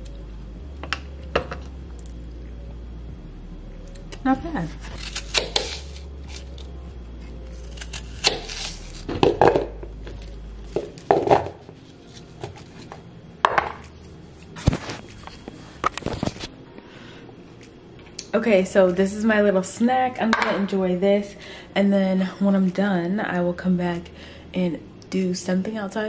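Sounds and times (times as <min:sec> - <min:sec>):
knife crunching through apple: 0:04.8 - 0:13.0, 0:13.8 - 0:16.5.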